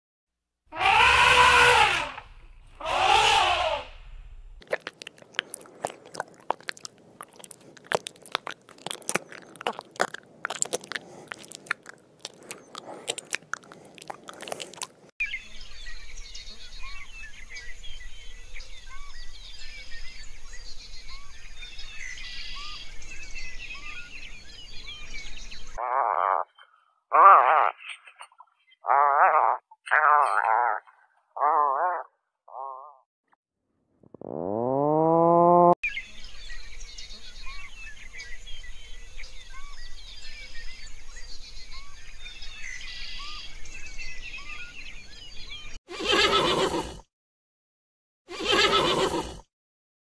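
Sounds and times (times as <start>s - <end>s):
elephant calling: 0.7s - 4.6s
snail crunching leaf: 0.8s - 15.1s.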